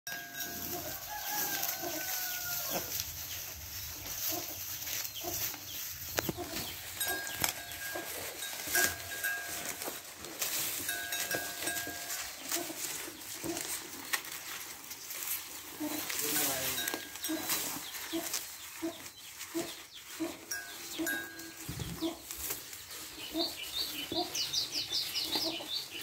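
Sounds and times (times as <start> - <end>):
cattle crunching grass: 0.1 - 26.0.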